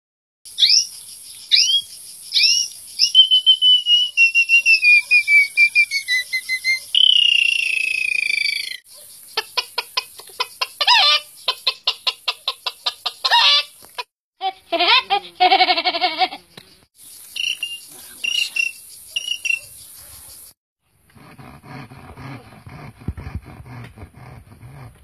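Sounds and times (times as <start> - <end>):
person whistling bird calls: 2.4 - 8.8
hen-like clucks: 9.0 - 16.8.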